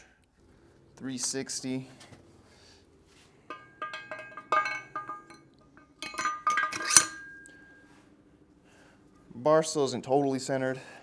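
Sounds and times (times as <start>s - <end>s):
metallic ring: 3.4s - 8.0s
steel parts clinking and knocking: 3.5s - 7.7s.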